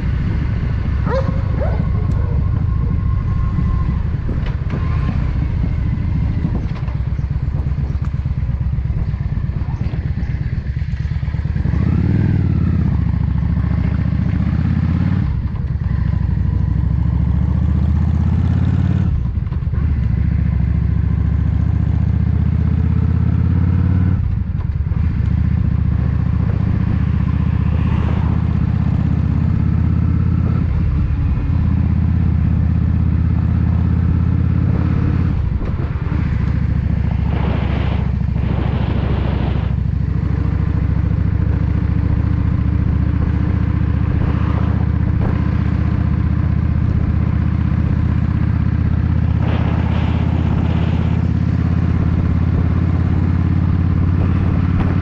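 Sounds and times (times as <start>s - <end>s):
wind on microphone: 0.0s - 12.2s, 32.4s - 55.0s
motorcycle engine accelerating: 0.0s - 55.0s.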